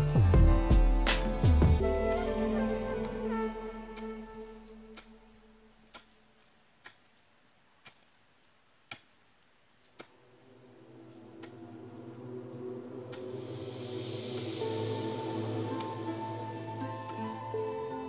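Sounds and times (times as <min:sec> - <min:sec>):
background music: 0:00.0 - 0:06.0, 0:10.2 - 0:18.0.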